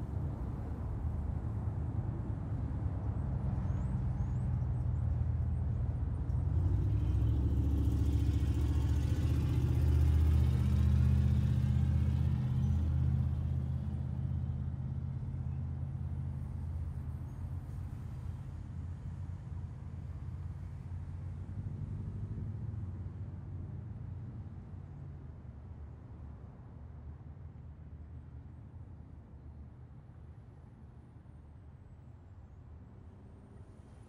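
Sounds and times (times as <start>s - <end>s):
low traffic rumble: 0.0s - 28.2s
car passing: 6.4s - 14.6s.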